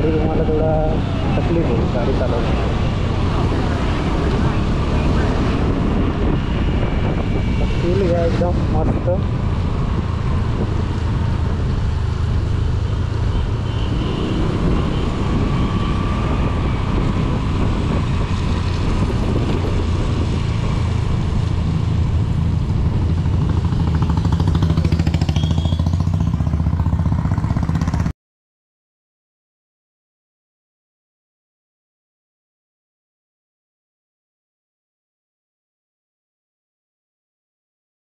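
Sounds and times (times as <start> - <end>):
scooter engine: 20.9 - 28.1.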